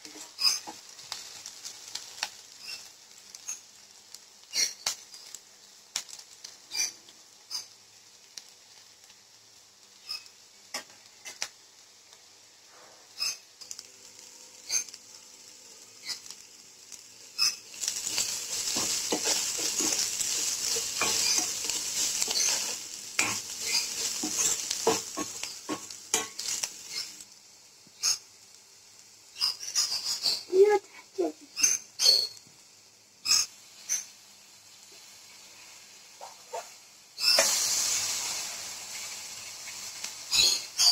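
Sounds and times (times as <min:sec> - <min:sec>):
sizzle of frying in hot oil: 0:00.0 - 0:40.9
steel spoon clinking against pan: 0:17.8 - 0:26.6.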